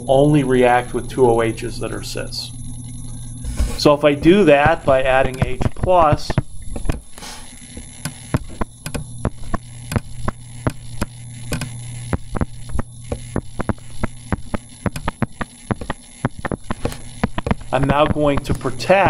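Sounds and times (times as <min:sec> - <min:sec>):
low electrical hum: 0:00.0 - 0:19.0
stylus tapping on drawing tablet: 0:13.1 - 0:18.3.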